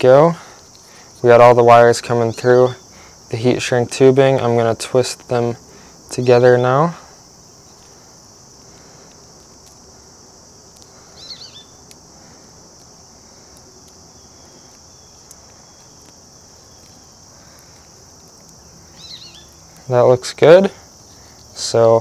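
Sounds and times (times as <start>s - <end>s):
insect trill: 0.0s - 22.0s
soft handling sounds: 7.5s - 21.6s.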